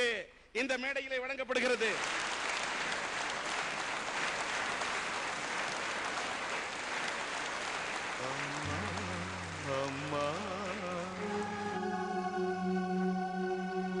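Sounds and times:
audience applauding: 0:01.6 - 0:12.0
music with low drone and melody: 0:08.7 - 0:14.0.

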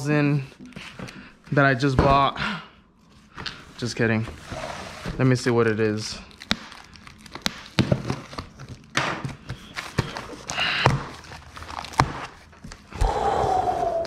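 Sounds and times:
packing tape tearing: 0:06.2 - 0:12.8.

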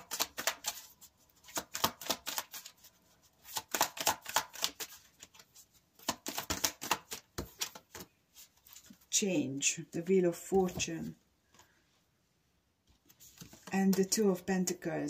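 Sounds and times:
cards being shuffled: 0:00.0 - 0:09.1, 0:12.9 - 0:14.3.

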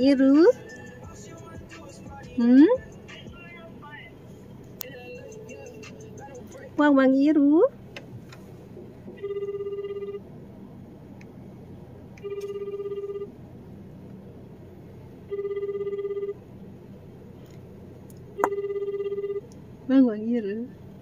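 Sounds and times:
warbling ringback tone: 0:09.2 - 0:10.2, 0:12.2 - 0:13.3, 0:15.3 - 0:16.4.

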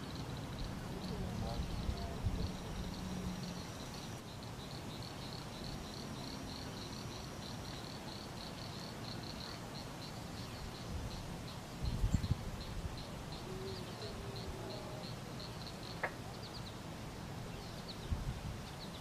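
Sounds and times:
insect chirping: 0:00.0 - 0:19.0
low background hiss: 0:00.0 - 0:19.0.

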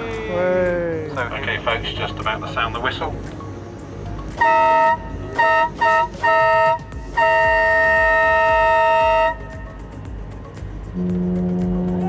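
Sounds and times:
boat horn blasts: 0:04.3 - 0:09.8, 0:11.0 - 0:12.0.

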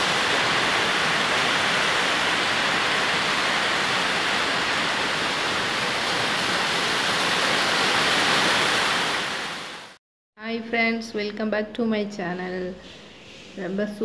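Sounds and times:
rain: 0:00.0 - 0:10.0
wind through trees: 0:00.0 - 0:10.0.

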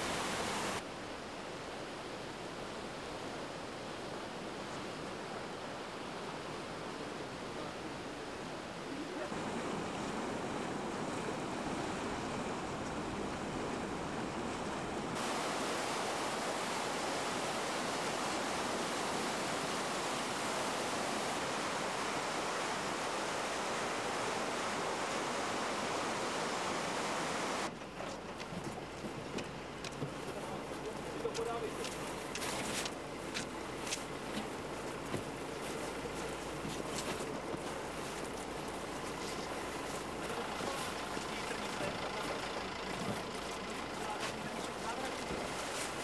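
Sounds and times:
flooding river rushing: 0:00.0 - 0:46.0.

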